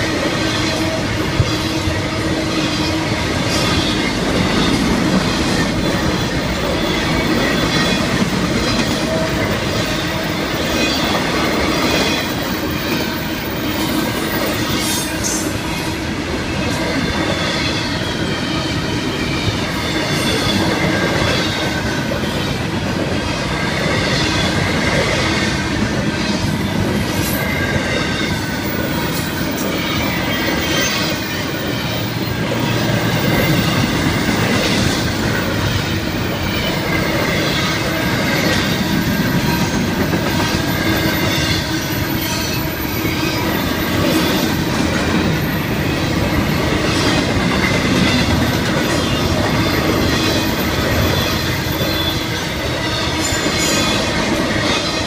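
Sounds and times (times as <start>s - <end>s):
train wheels rumbling on rails: 0.0s - 55.0s
wheel squeals: 26.2s - 55.0s.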